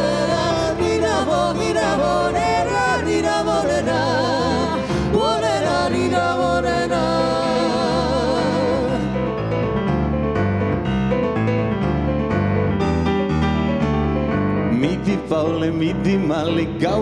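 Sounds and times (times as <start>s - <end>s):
man and woman singing: 0.0s - 9.2s, 14.7s - 17.0s
digital piano accompaniment: 0.0s - 17.0s.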